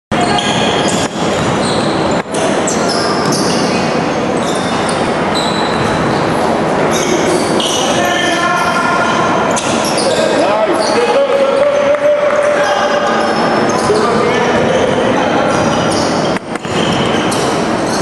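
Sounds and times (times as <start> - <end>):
gym room noise: 0.1 - 18.0
sneakers squeaking on court: 0.2 - 8.0, 9.0 - 18.0
basketball bouncing: 0.4 - 2.3.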